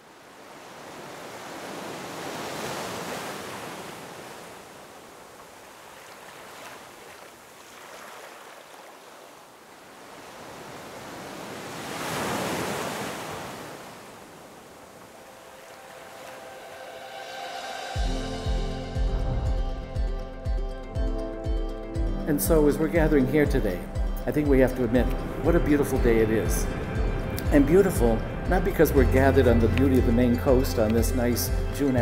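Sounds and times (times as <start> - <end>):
ocean waves breaking: 0.0 - 19.5, 22.3 - 32.0.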